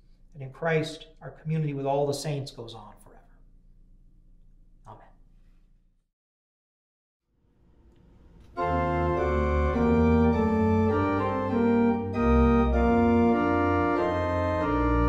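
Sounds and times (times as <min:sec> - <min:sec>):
organ playing a hymn: 0:08.5 - 0:15.0.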